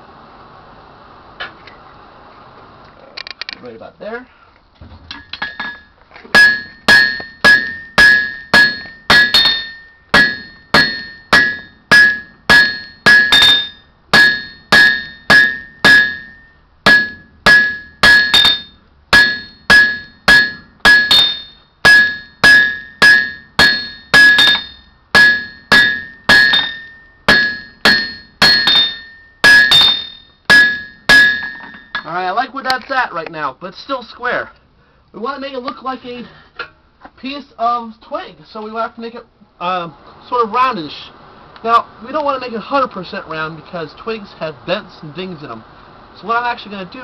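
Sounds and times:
hammer striking iron on anvil: 5.1 - 32.1
high anvil ring: 5.1 - 32.2.

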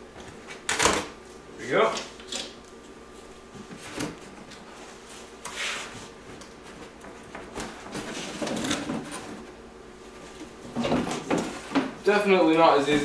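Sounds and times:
cardboard sliding against cardboard: 5.2 - 6.1.

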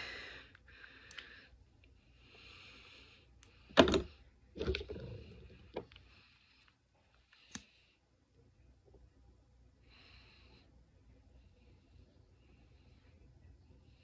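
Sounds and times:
soft nose breathing: 0.0 - 3.8, 9.8 - 14.0
plastic tubes clicking and knocking: 3.7 - 6.0.

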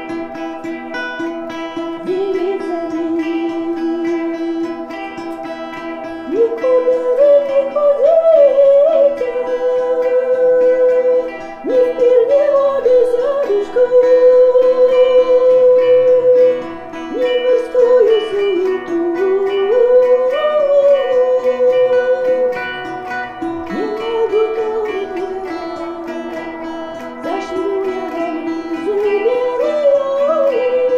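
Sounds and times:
plucked string instrument: 0.0 - 30.9
woman singing folk melody: 0.0 - 30.9.

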